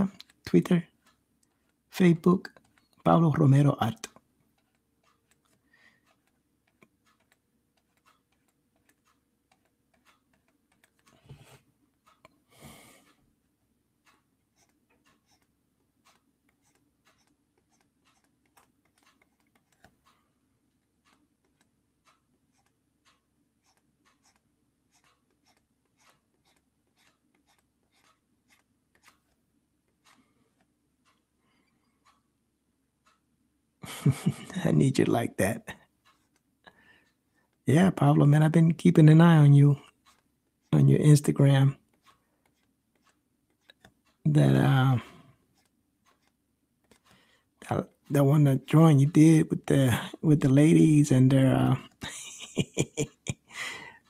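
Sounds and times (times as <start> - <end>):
faint low hum: 0.0 - 42.0
stylus scratching on tablet: 1.0 - 12.3, 14.0 - 20.2, 21.1 - 29.4, 39.8 - 47.2.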